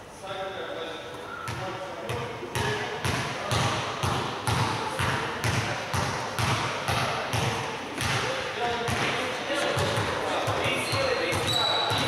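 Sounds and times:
basketball bouncing on hardwood floor: 0:01.5 - 0:08.2.

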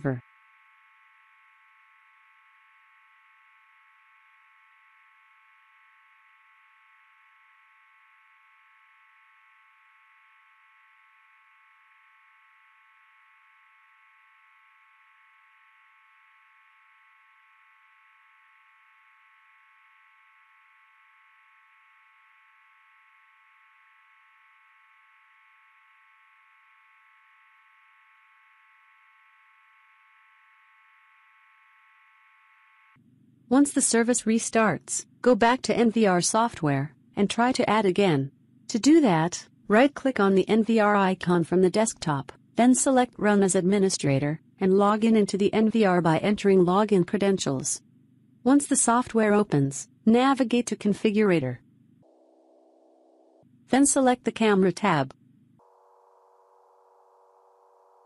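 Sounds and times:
faint high electronic whine: 0:00.0 - 0:34.0, 0:51.6 - 0:53.5, 0:55.1 - 0:58.0.

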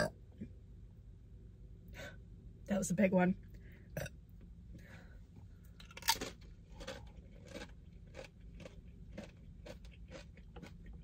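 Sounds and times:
person chewing food: 0:05.7 - 0:11.0
loud crunch: 0:05.8 - 0:10.9.

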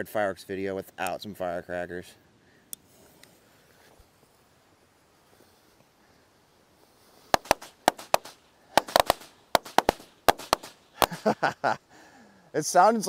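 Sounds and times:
firecrackers popping: 0:07.3 - 0:11.4.

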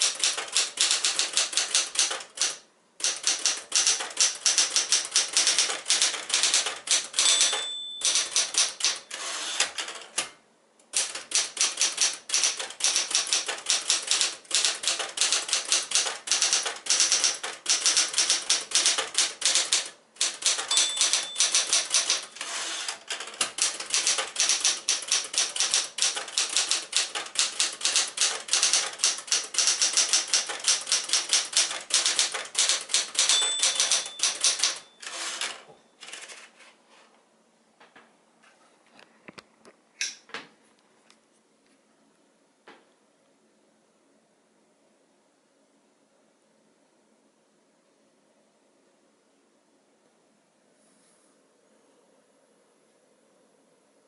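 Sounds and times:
typewriter margin bell ringing: 0:00.0 - 0:10.0, 0:11.0 - 0:36.3
typewriter keystrokes clacking: 0:00.0 - 0:36.4.

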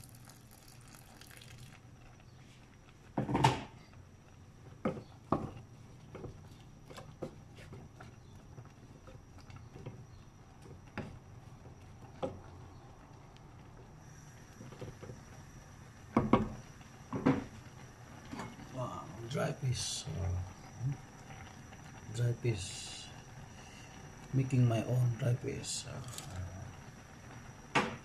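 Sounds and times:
water pouring into pot: 0:00.0 - 0:02.0.

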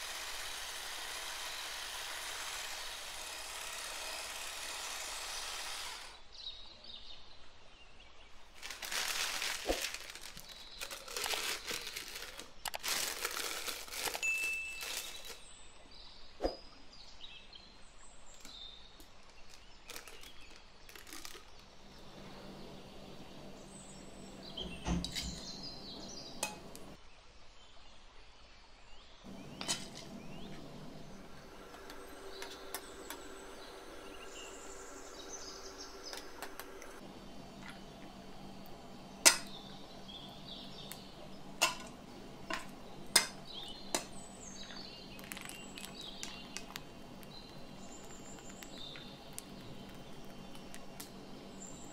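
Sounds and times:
plastic piping bag crinkling: 0:08.5 - 0:15.5, 0:18.4 - 0:22.2, 0:37.5 - 0:51.9.

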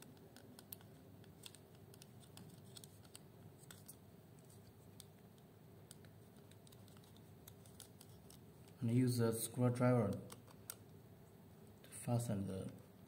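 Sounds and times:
faint clicks and scratches: 0:00.0 - 0:08.9.

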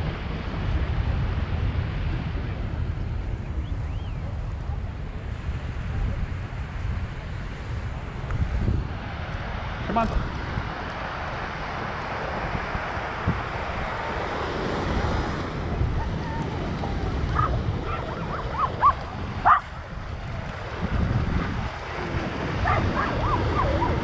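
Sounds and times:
surf washing onto beach: 0:00.0 - 0:24.0
wind on microphone: 0:00.0 - 0:24.0
dog barking: 0:17.3 - 0:19.8, 0:22.6 - 0:24.0.

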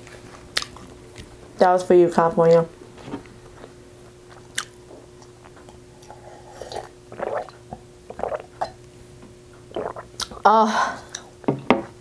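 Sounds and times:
person swallowing water: 0:06.5 - 0:08.8, 0:09.7 - 0:10.5.

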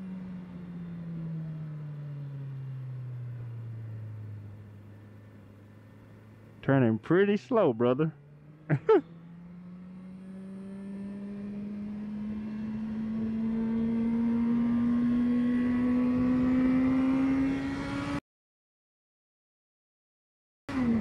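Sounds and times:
motorcycle engine revving up: 0:08.1 - 0:18.2, 0:20.7 - 0:21.0.

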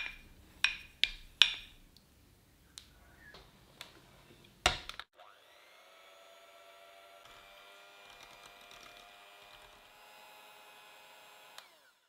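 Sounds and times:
electric hand mixer whine: 0:05.2 - 0:12.0.

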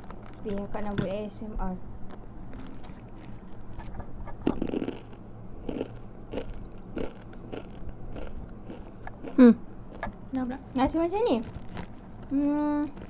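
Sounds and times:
crunching and chewing snack: 0:02.1 - 0:10.0.

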